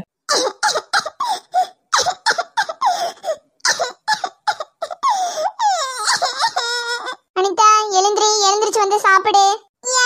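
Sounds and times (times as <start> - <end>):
girl sobbing in broken gasps: 0.3 - 7.2.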